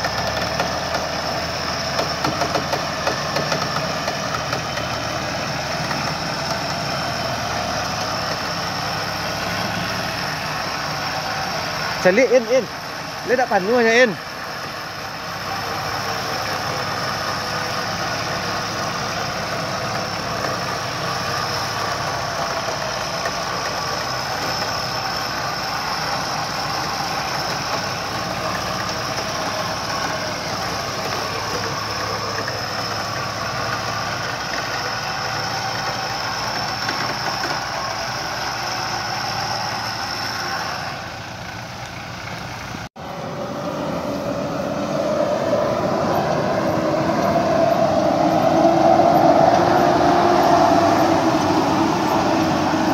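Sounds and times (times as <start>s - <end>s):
truck engine running: 0.0s - 52.9s
steady high whine: 42.9s - 52.9s.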